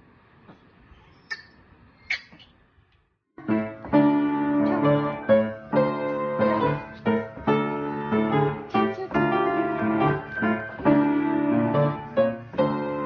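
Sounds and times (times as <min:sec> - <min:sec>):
piano notes and chords: 0:03.4 - 0:13.0.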